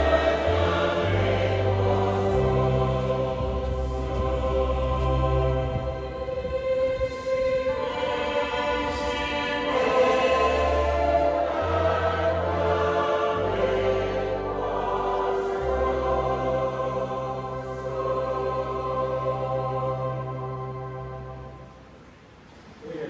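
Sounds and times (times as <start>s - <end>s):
choir singing a hymn: 0.0s - 21.8s.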